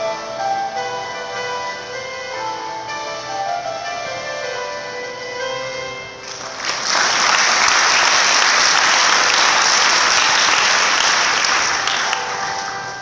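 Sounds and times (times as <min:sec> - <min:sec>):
background music: 0:00.0 - 0:13.0
audience applauding: 0:06.2 - 0:13.0.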